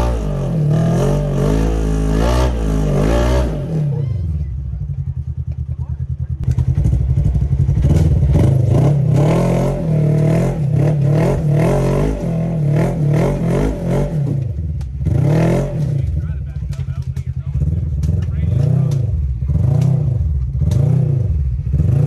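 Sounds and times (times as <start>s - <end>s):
engine revving: 0.0s - 22.0s.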